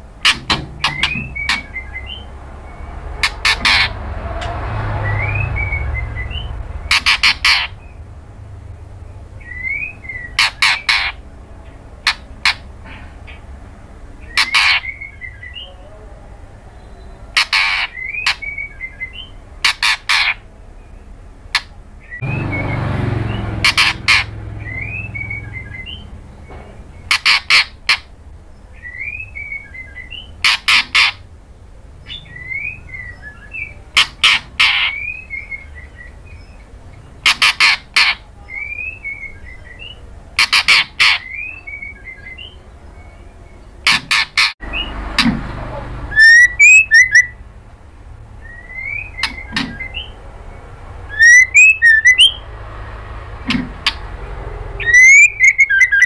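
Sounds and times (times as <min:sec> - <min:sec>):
bird clicking call notes: 0:00.2 - 0:01.8.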